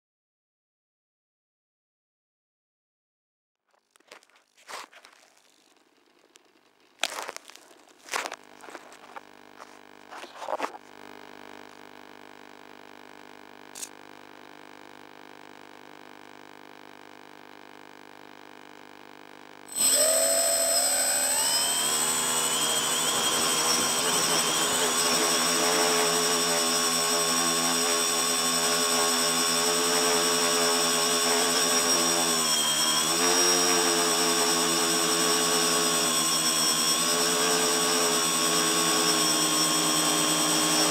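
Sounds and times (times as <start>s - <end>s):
drone motors whining: 19.7s - 40.9s.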